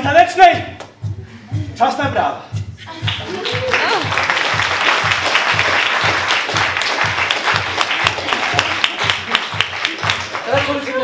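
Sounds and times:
background music with steady beat: 0.0s - 11.0s
audience applauding: 3.0s - 11.0s.

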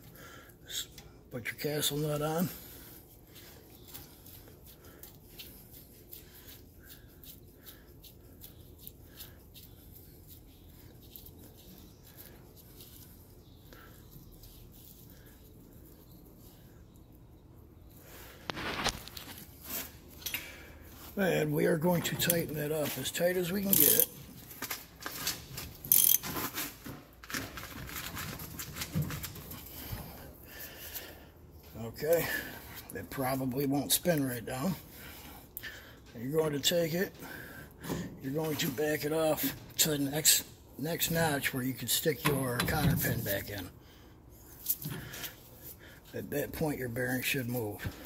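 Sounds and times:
metallic ticks and rubbing: 23.4s - 24.2s, 25.2s - 26.6s
socket ratchet clicking: 25.9s - 26.2s.

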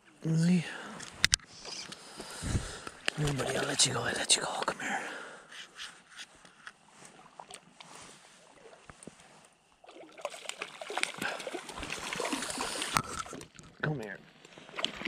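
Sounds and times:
river water splashing: 2.0s - 5.2s, 6.8s - 15.0s.

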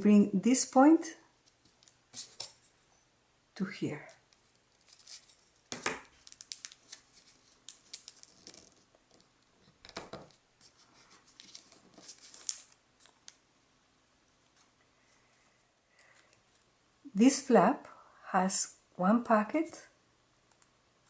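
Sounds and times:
paper rustling and crackling: 4.3s - 13.4s.

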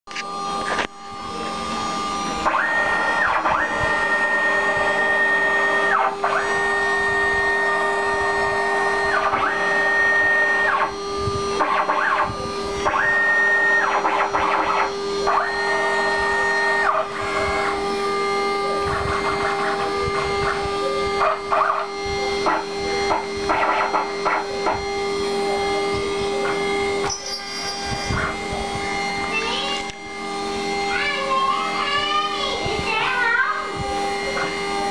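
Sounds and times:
spindle humming: 0.1s - 34.9s
stepper motors whining: 0.1s - 34.9s.

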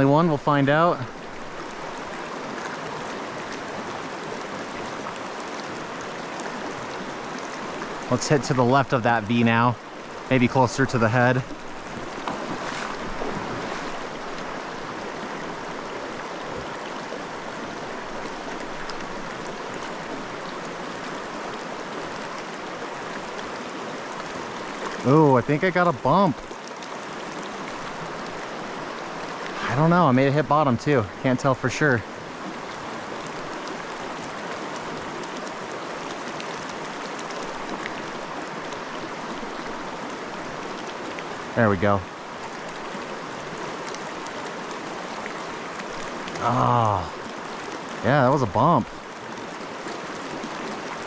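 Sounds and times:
creek water rushing over rocks: 0.0s - 51.0s
small splashes: 11.5s - 16.7s.

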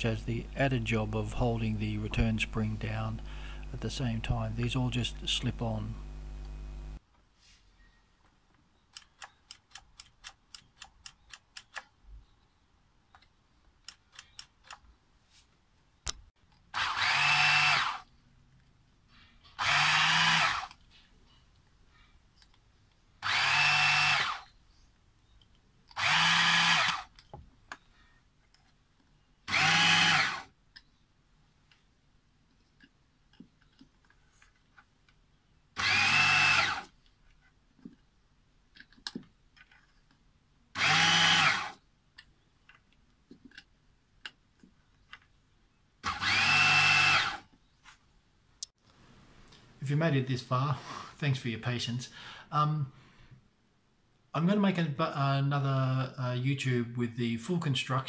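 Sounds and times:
electric motor whine: 6.0s - 7.0s, 16.8s - 18.0s, 19.6s - 20.7s, 23.2s - 24.4s, 26.0s - 27.1s, 29.5s - 30.5s, 35.8s - 36.9s, 40.8s - 41.8s, 46.0s - 47.4s.

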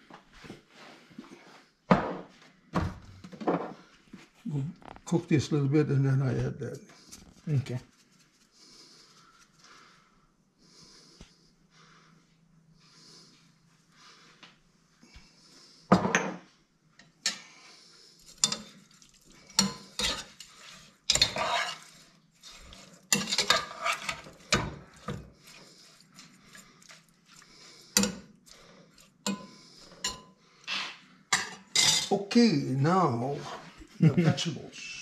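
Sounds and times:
metal spoon scraping a pot: 18.3s - 28.3s, 29.0s - 32.1s.

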